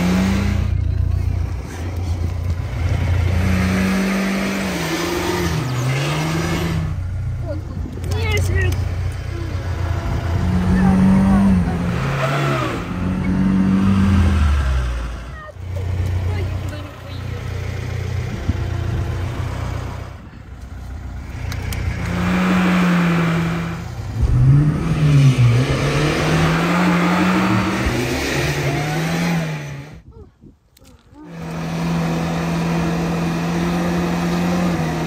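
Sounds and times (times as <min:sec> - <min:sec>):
car engine revving hard: 0:00.0 - 0:00.8, 0:02.5 - 0:07.1, 0:09.0 - 0:16.7, 0:21.2 - 0:30.0, 0:31.3 - 0:35.0.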